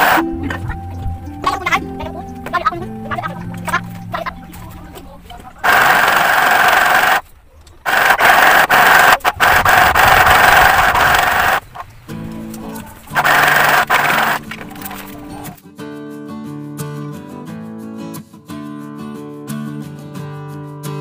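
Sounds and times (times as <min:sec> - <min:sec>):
sewing machine buzzing: 0:00.0 - 0:00.2, 0:05.6 - 0:07.2, 0:07.8 - 0:11.8, 0:13.1 - 0:15.1.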